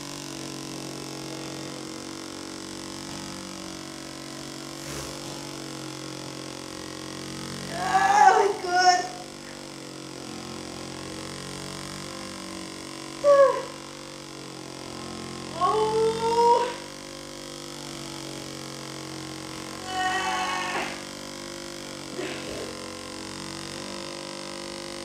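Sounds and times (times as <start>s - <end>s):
massage gun motor hum: 0.0s - 25.0s
short high cries: 19.8s - 21.0s.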